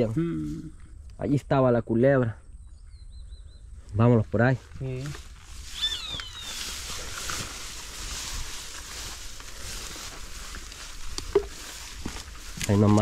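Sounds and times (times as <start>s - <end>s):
footsteps through tall grass: 4.1s - 13.0s
falling bird call: 5.7s - 7.2s.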